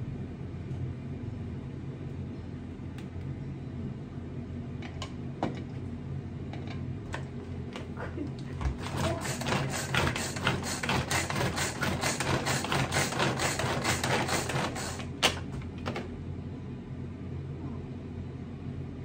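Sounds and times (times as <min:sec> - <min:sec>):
knife chopping vegetables: 0:08.7 - 0:15.1.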